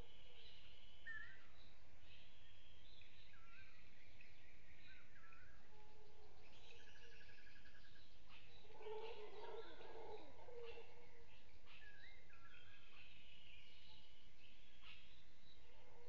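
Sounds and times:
birds chirping and whistling: 6.4s - 16.0s.

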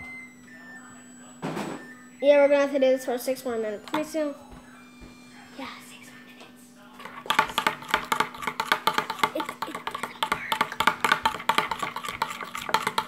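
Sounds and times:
metal spoon scraping glass bowl: 11.3s - 13.0s.

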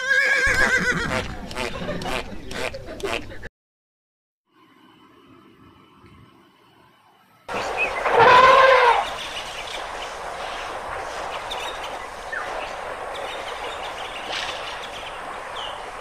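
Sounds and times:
steady background hiss: 4.6s - 16.0s
elephant trumpeting: 8.0s - 9.2s.

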